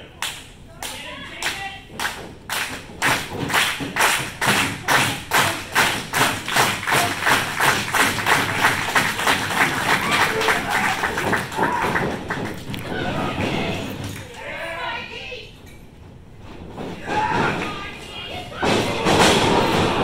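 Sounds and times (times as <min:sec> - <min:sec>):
crowd clapping in unison: 0:00.2 - 0:13.0.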